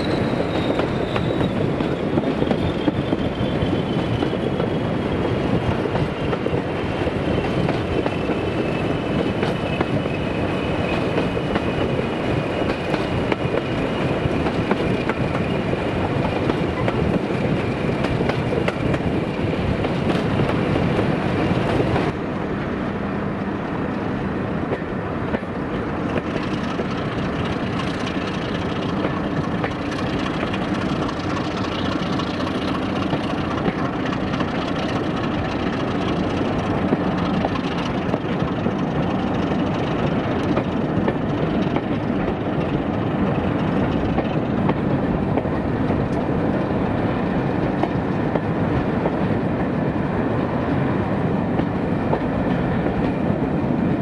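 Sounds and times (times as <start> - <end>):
high wheel squeal: 0.0 - 5.4
train rumbling along track: 0.0 - 54.0.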